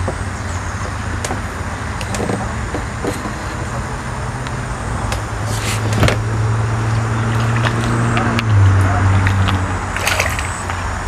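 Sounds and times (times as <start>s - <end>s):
fish splashing in water: 7.1s - 8.2s, 9.3s - 11.0s.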